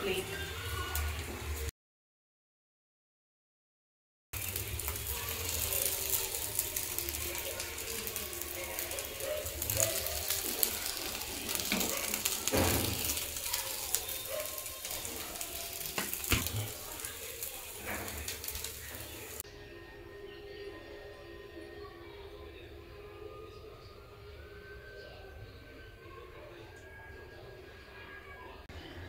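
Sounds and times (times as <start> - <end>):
light sizzle: 0.0 - 1.7, 4.4 - 19.4
wooden spatula scraping pan: 14.9 - 19.4.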